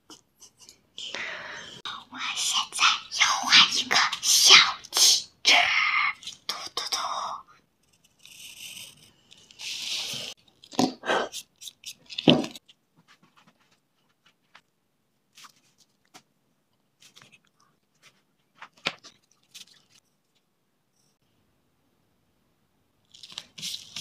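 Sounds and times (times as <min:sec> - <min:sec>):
child's voice: 0:01.9 - 0:07.5
pencil scratching on paper: 0:07.8 - 0:10.4
paper rustling: 0:15.3 - 0:16.3, 0:17.0 - 0:20.0, 0:23.1 - 0:24.0.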